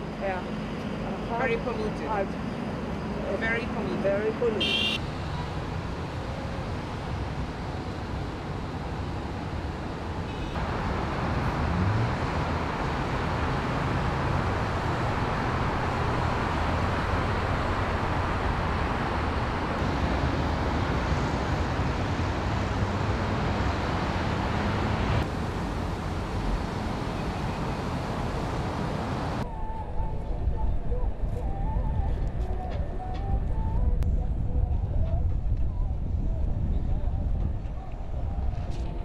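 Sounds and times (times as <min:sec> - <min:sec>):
road traffic rumble: 0:00.0 - 0:39.0.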